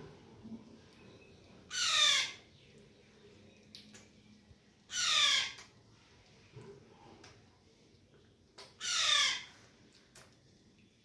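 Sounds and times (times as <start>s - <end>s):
parrot squawks: 1.7s - 2.4s, 4.9s - 5.6s, 8.8s - 9.5s.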